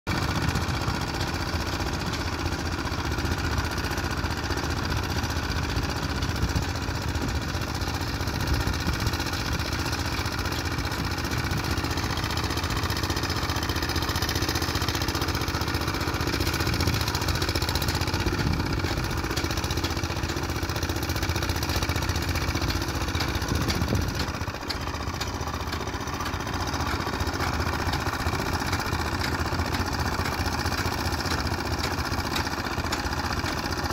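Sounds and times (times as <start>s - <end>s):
plate compactor running: 0.1s - 33.9s.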